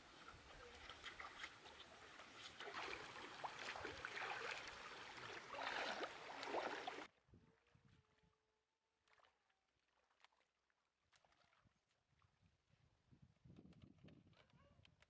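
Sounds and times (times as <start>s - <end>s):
stream water splashing: 0.0s - 7.1s.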